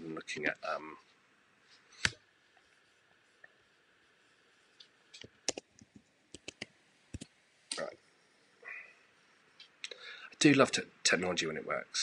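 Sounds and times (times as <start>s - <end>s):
keyboard and mouse clicks: 4.8s - 7.9s.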